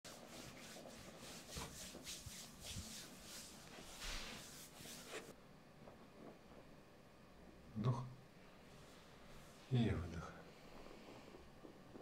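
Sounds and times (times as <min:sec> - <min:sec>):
hands rubbing skin in massage: 0:00.0 - 0:05.3.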